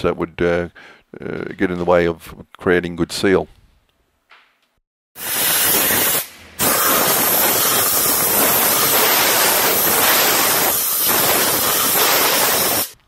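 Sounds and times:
spray gun hissing: 0:05.2 - 0:13.0.

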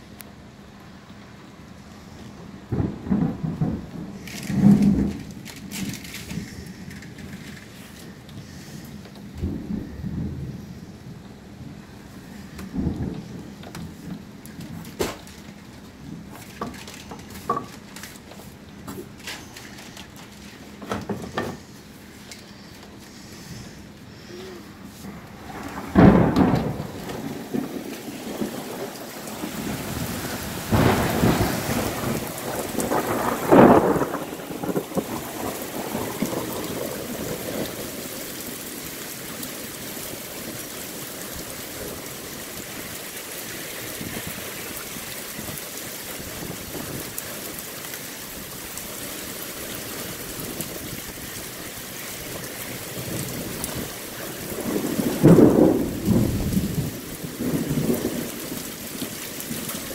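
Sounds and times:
heavy rain falling: 0:00.0 - 0:59.9
thunder claps: 0:02.6 - 0:15.4, 0:25.1 - 0:43.1, 0:52.3 - 0:59.9.

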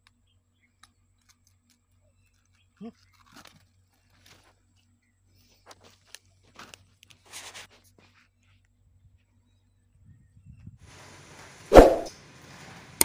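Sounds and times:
faint rustles and scuffs: 0:03.3 - 0:09.3.

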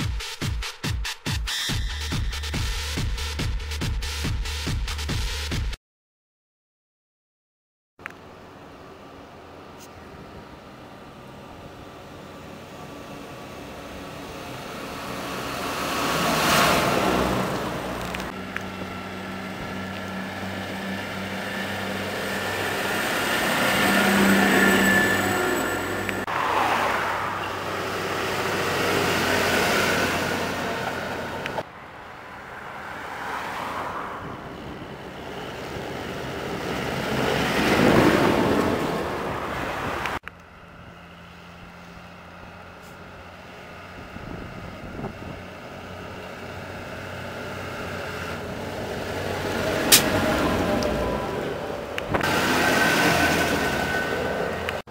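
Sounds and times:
distant tractor: 0:08.0 - 0:32.8, 0:40.0 - 0:54.8
diesel tractors driving past: 0:08.1 - 0:54.9.

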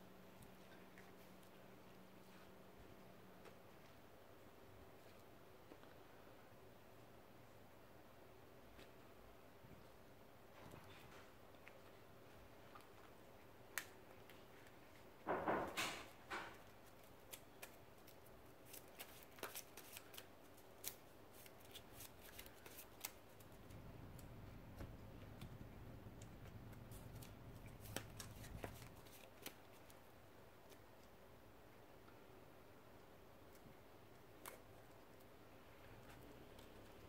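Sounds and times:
cards clicking and snapping: 0:16.4 - 0:23.5, 0:26.2 - 0:30.0
cards rustling: 0:16.5 - 0:30.0.

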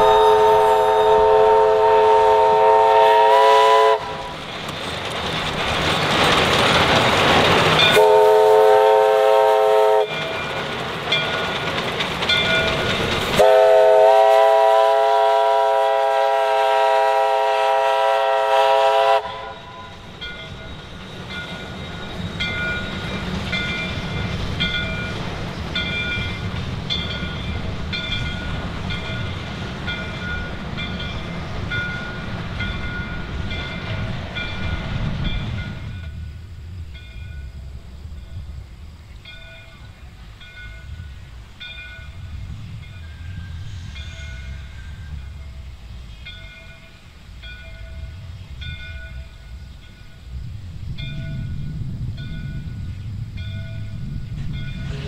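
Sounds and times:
locomotive chime whistle: 0:00.0 - 0:04.4, 0:07.8 - 0:11.5, 0:12.3 - 0:25.2.

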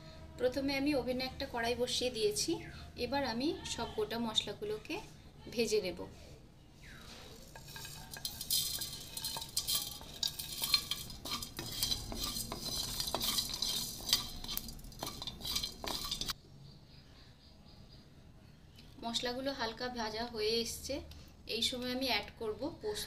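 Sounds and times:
seeds rattling in a pan: 0:06.8 - 0:16.4.

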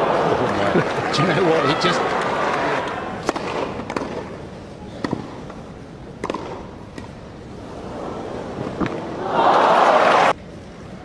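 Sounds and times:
low crowd hum: 0:00.0 - 0:11.0
tennis ball struck by rackets: 0:03.2 - 0:04.4, 0:05.0 - 0:05.4, 0:06.2 - 0:07.2.

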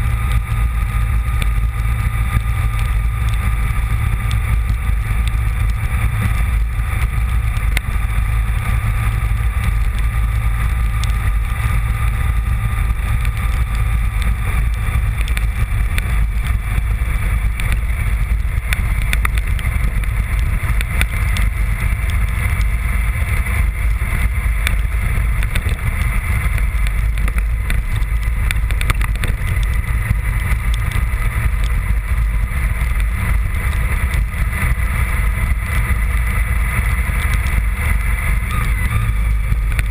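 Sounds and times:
motorcycle engine rumbling: 0:00.0 - 0:39.9.

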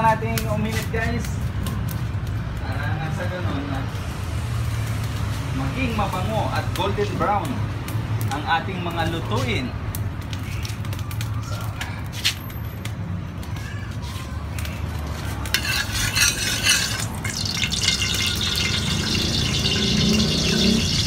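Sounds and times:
oil sizzling in a wok: 0:03.9 - 0:08.3, 0:15.4 - 0:21.0
metal spatula scraping a pan: 0:15.4 - 0:21.0.

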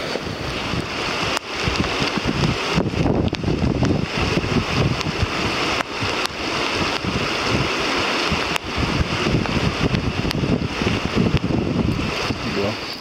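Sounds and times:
river rushing: 0:00.0 - 0:13.0
wind buffeting microphone: 0:00.0 - 0:13.0
sharp ticks: 0:01.3 - 0:04.0, 0:11.2 - 0:12.0.

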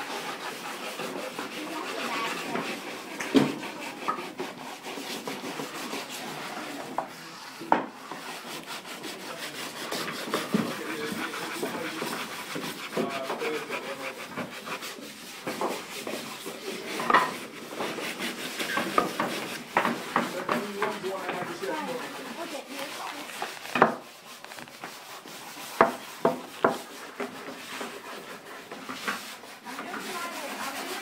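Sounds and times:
sandpaper scratching wood: 0:00.0 - 0:31.0
wood knocking on table: 0:07.7 - 0:07.9, 0:23.7 - 0:24.0.

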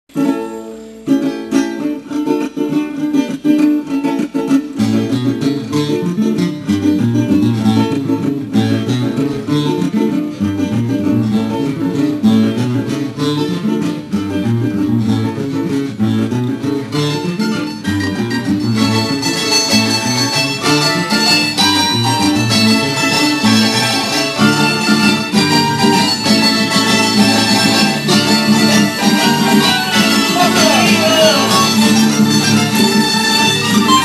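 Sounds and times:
plucked string ensemble: 0:00.1 - 0:34.0
bass line: 0:14.3 - 0:34.0.

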